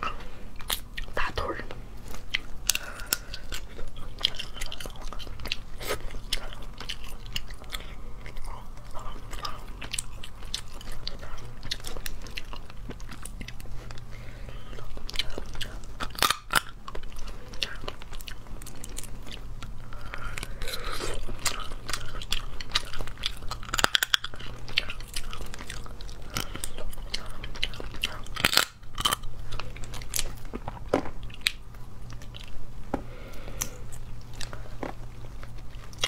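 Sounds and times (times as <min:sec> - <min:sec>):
chewing: 0:00.0 - 0:36.0
crab shells cracking: 0:14.9 - 0:20.6, 0:21.2 - 0:32.6.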